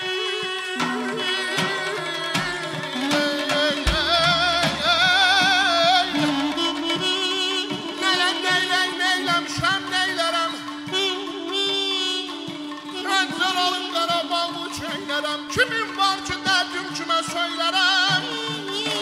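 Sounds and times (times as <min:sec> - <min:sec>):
wavering woodwind melody: 0:00.0 - 0:14.3
drum keeping time: 0:00.0 - 0:19.0
man singing: 0:00.0 - 0:19.0
plucked lute over drone: 0:03.5 - 0:06.0.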